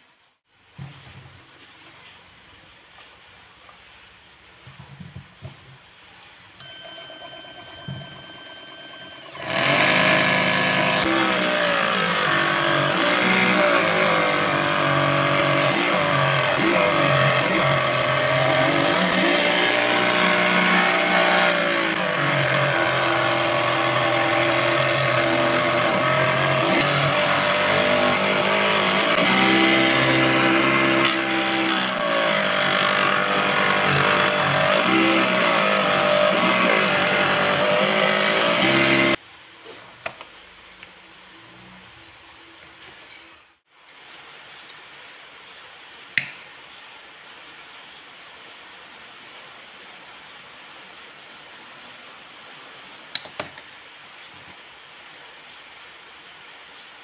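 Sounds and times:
table saw cutting plastic: 0:06.6 - 0:39.2.

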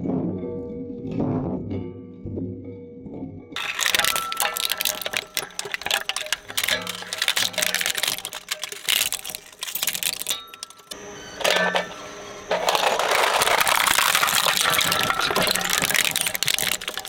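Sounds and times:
shredder blades crunching toy car: 0:03.6 - 0:17.0.

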